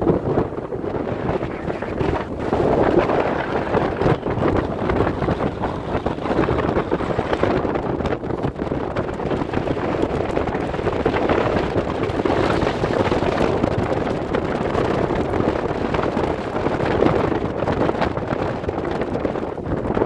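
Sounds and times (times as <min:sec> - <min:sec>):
wind buffeting the microphone: 0:00.0 - 0:20.0.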